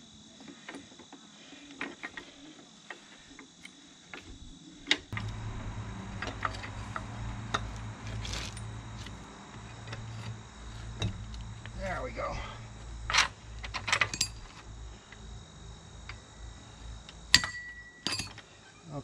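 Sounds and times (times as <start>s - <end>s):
steady low hum: 0.0s - 19.0s
metal tools clinking: 6.2s - 9.2s, 13.1s - 14.6s, 17.3s - 18.5s.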